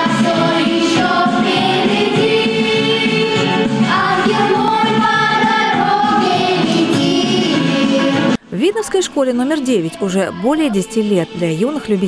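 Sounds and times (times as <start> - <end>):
children singing pop song: 0.0 - 8.4, 9.6 - 12.0
instrumental accompaniment: 0.0 - 8.4.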